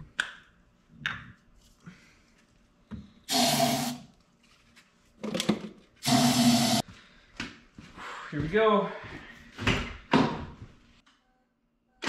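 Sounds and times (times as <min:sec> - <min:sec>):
aerosol can spraying: 0:03.3 - 0:04.0, 0:06.0 - 0:06.8.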